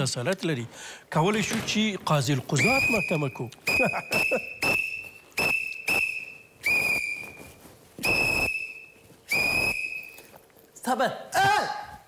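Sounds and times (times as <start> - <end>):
police whistle blasts: 2.6 - 7.4, 8.0 - 10.2.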